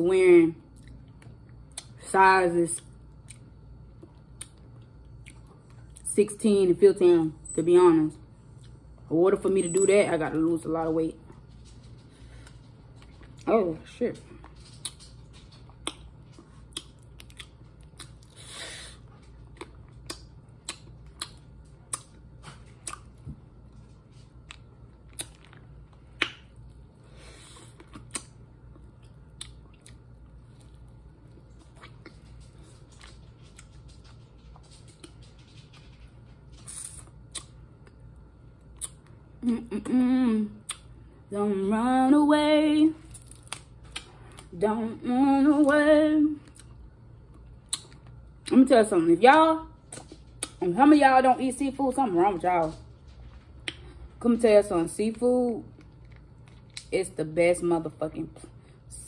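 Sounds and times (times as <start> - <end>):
wet mouth and finger smacks: 26.2 - 26.5
woman humming: 39.4 - 40.6.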